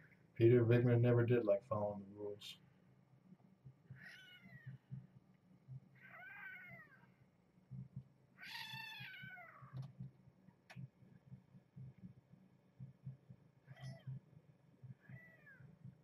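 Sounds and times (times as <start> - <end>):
kitten mewing: 8.4 - 9.7.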